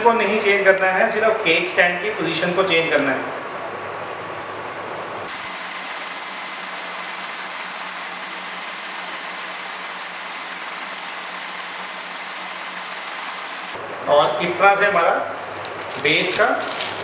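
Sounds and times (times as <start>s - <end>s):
faint constant hum: 0.0s - 17.0s
background recording hiss: 5.3s - 15.3s.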